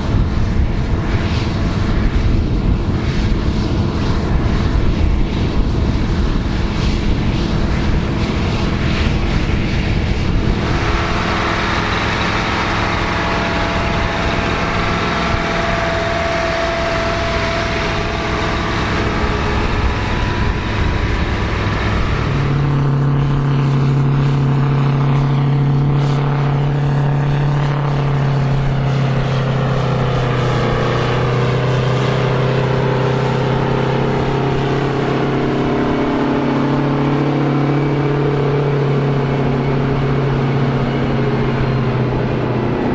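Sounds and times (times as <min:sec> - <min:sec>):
engine with strong low note: 0:00.0 - 0:42.9
tractor engines under load: 0:10.4 - 0:23.4.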